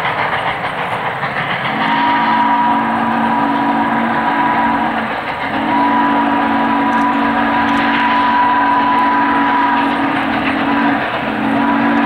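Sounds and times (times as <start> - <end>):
steam locomotive chime whistle: 1.7 - 12.0.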